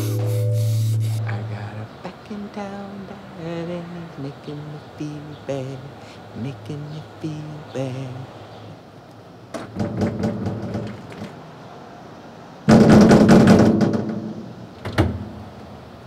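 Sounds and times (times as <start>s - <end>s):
metal doors rattling and banging: 9.5s - 11.4s, 12.7s - 15.4s.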